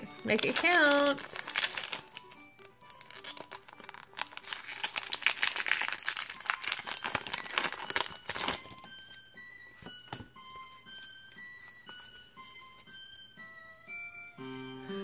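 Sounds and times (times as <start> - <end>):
foil wrapper crinkling and tearing: 0.0 - 8.8
faint background music: 0.0 - 15.0.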